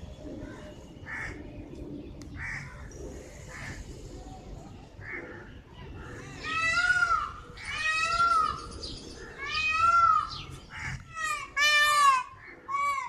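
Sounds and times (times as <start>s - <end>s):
peacock calling: 5.0s - 13.0s.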